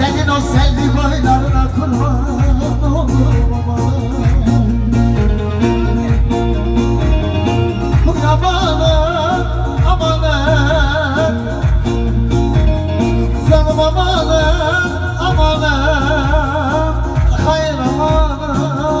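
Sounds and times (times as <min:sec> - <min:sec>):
amplified band: 0:00.0 - 0:19.0
man singing into microphone: 0:00.0 - 0:19.0.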